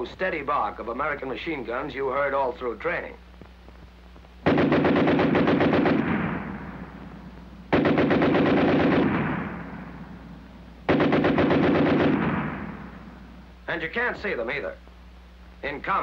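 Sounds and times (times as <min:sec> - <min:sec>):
steady low hum: 0:00.0 - 0:16.0
machine gun bursts: 0:04.4 - 0:06.6, 0:07.7 - 0:09.5, 0:10.9 - 0:12.8.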